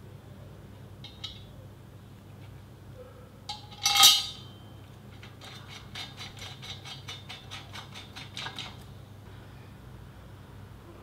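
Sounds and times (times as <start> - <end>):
metallic clink on steel frame: 3.5 - 4.6.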